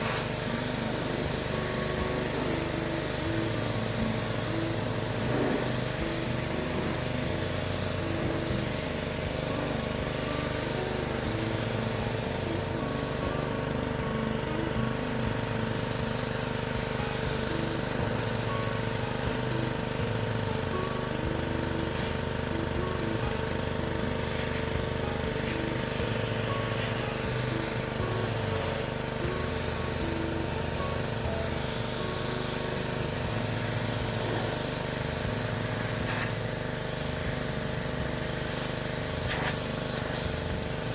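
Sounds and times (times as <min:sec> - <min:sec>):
pressure washer engine running: 0:00.0 - 0:40.9
water jet hissing on fabric: 0:00.0 - 0:40.9.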